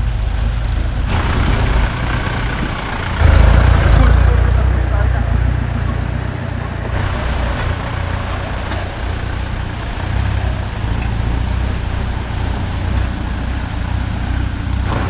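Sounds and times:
off-road vehicle engine rumble: 0.0 - 15.0.

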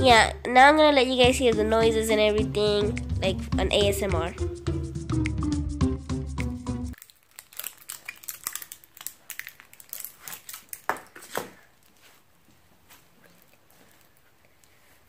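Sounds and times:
music: 0.0 - 7.0.

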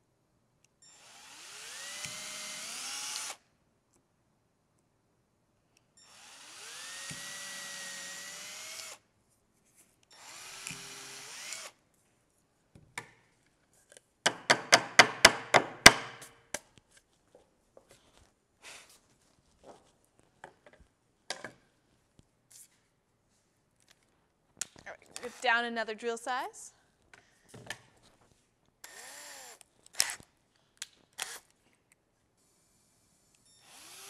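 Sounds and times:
cordless drill whining: 0.8 - 3.4, 6.0 - 9.0, 10.1 - 11.8, 28.8 - 30.3, 31.2 - 31.5, 33.4 - 34.0
sharp knocks: 14.3 - 16.2.

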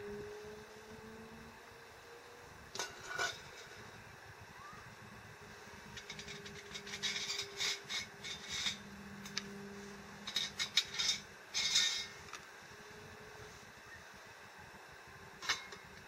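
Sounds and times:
metal mugs scraping and clinking: 2.8 - 3.8, 6.0 - 8.9, 10.2 - 12.2, 15.4 - 15.9.

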